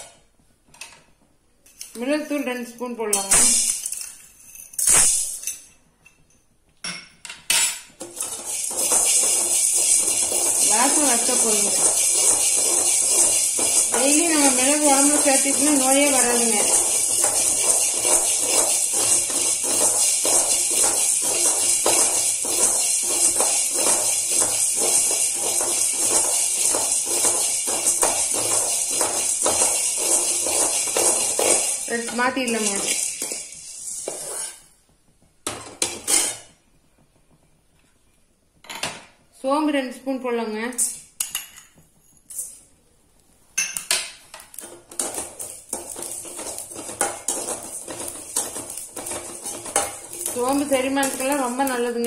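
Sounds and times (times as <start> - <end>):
peppercorns rattling in metal pan: 3.1 - 4.1, 8.0 - 34.5, 44.5 - 52.0.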